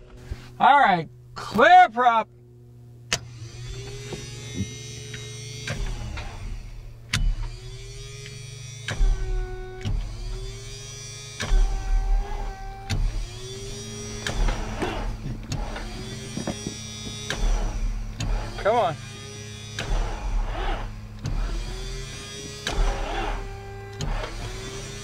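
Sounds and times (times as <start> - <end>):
starter cranking aircraft engine: 0.0 - 25.0
steady hum: 0.0 - 25.0
sharp clicks: 8.2 - 10.6, 11.4 - 18.6.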